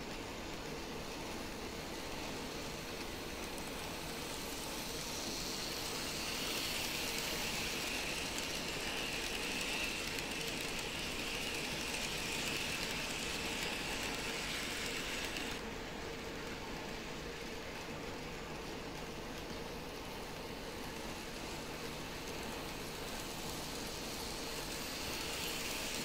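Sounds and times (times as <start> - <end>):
model train motor whine: 0.0 - 15.7, 16.4 - 26.0
small wheels rattling on rails: 0.1 - 26.0.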